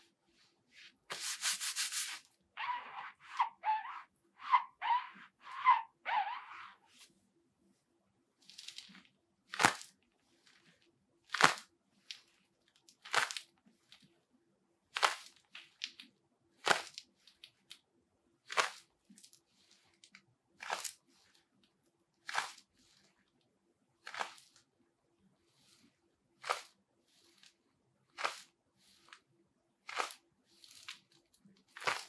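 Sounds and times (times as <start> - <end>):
glove foam crunching: 31.7 - 32.0.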